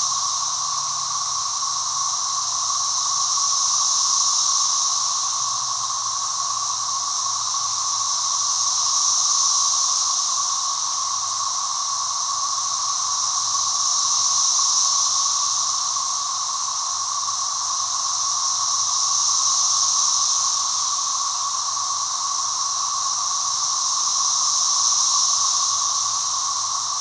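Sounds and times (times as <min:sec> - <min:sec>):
cicadas droning: 0:00.0 - 0:27.0.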